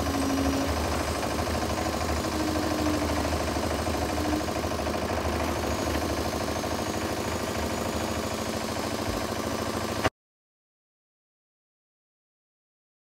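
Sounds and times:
cement mixer diesel engine running: 0.0s - 10.1s.

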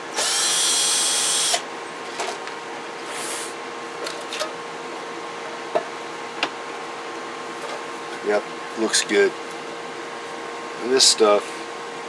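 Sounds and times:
power tool whirring: 0.0s - 1.6s.

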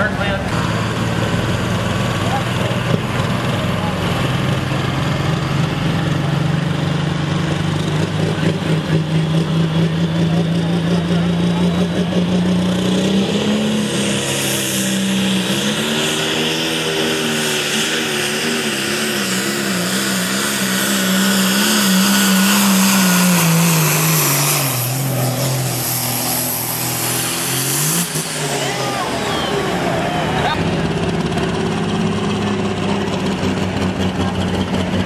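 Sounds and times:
tractor engine running under load: 0.0s - 13.0s, 28.4s - 35.0s.

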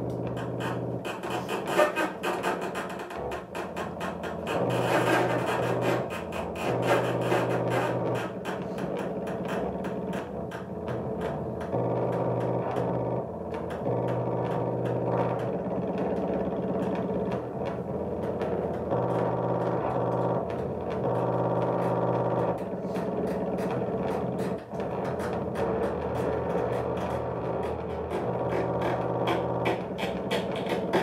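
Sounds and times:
bowed cello low tones: 0.0s - 31.0s.

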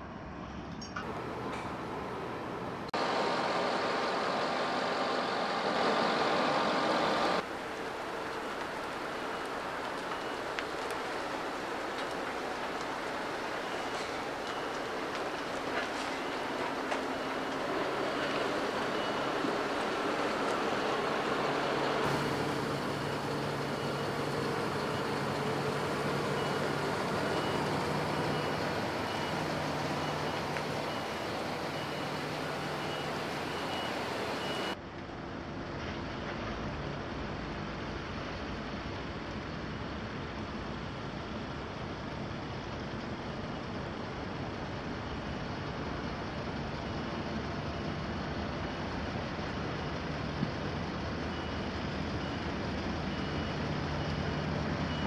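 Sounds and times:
tyre and road noise: 0.1s - 40.5s
diesel truck engine running: 1.1s - 34.8s
high warning beeper: 22.1s - 34.8s.

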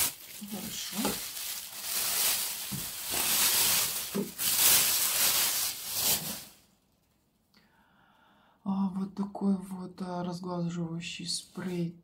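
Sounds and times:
plastic film crinkling: 0.0s - 6.8s.

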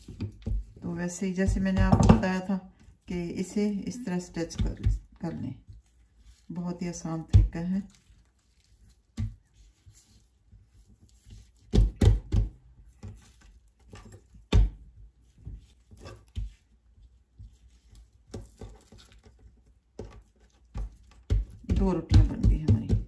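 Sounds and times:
dough thumping on a board: 0.0s - 2.5s, 7.2s - 7.8s, 9.1s - 9.6s, 11.2s - 16.6s, 19.9s - 23.0s.

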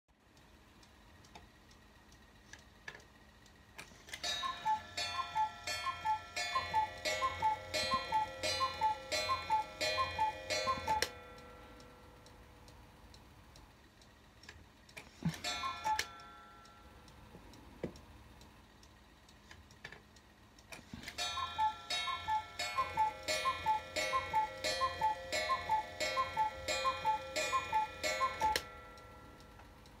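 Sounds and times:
cuckoo clock calling: 4.1s - 14.3s, 15.0s - 17.6s, 20.3s - 30.0s.

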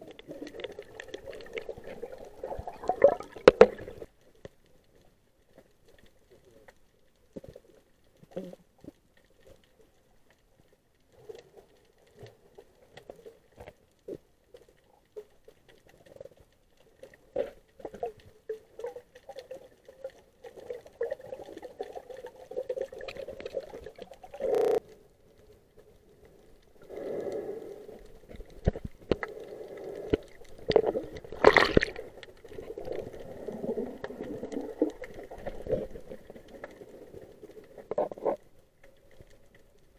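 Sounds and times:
underwater clicks and pops: 0.1s - 4.6s, 23.0s - 24.8s, 30.1s - 33.2s.

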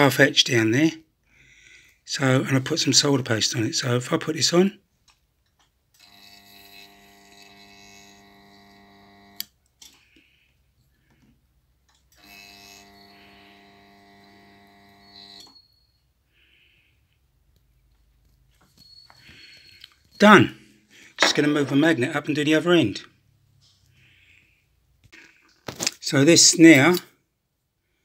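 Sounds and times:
resistance soldering unit buzzing: 6.0s - 9.5s, 12.2s - 15.5s.

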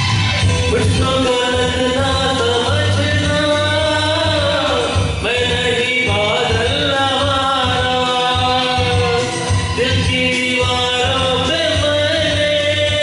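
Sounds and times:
backing track with steady beat: 0.0s - 13.0s
man singing into a microphone: 0.4s - 13.0s.

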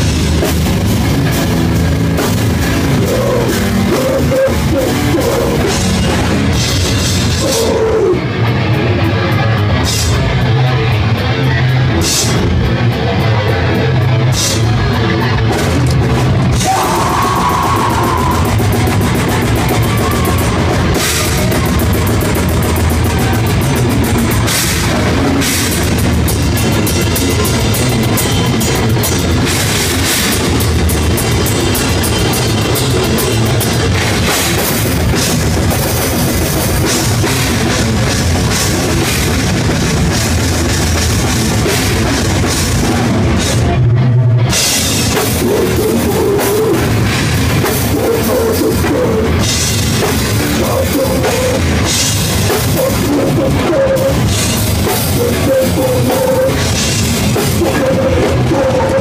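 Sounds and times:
death metal band playing: 0.0s - 59.0s
fast drum hits: 15.6s - 43.8s.

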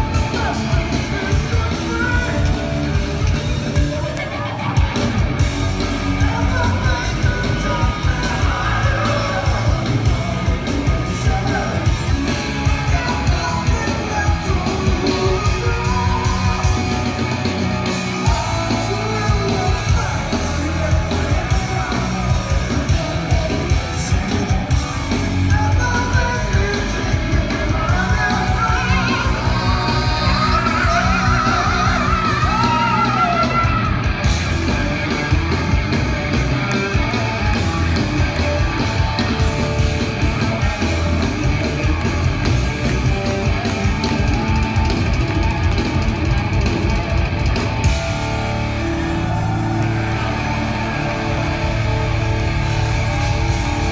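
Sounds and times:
man singing: 0.0s - 4.5s, 6.1s - 16.9s, 18.2s - 24.8s, 25.4s - 34.0s
bass guitar: 0.0s - 53.9s
drums: 0.0s - 53.9s
electric guitar: 0.0s - 53.9s.

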